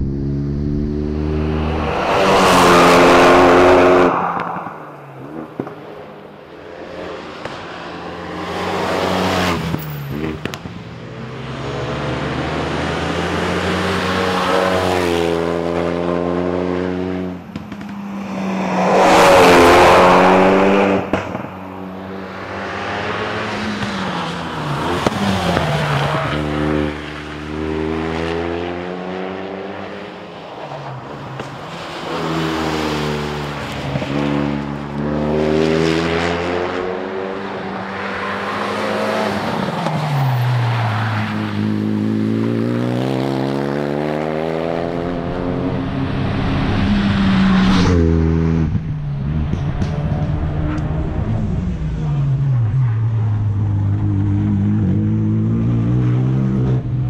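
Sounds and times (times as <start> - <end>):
rally car engine accelerating: 0.0 - 4.2.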